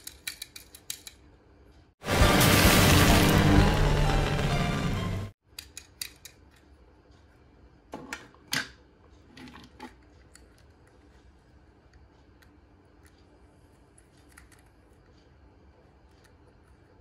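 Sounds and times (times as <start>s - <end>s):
toy cars clicking on table: 0.0s - 1.3s.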